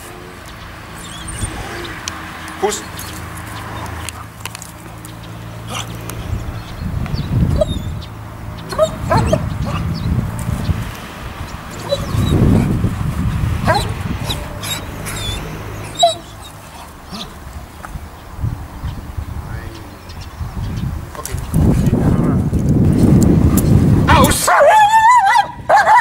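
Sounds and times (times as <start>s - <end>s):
low rumbling noise: 0.0s - 24.4s
dog whining and yelping: 1.0s - 1.9s, 7.5s - 8.0s, 8.7s - 9.9s, 11.7s - 12.4s, 13.7s - 17.4s.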